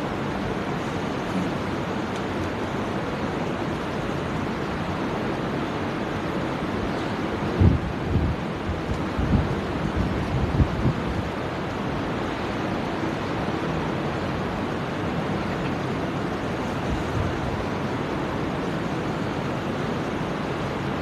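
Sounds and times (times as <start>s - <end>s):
electric fans rushing: 0.0s - 21.0s
air buffeting microphone: 7.0s - 20.1s.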